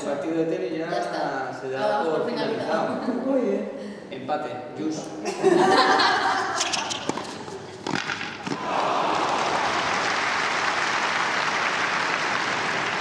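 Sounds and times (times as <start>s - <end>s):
applause: 8.6s - 13.0s.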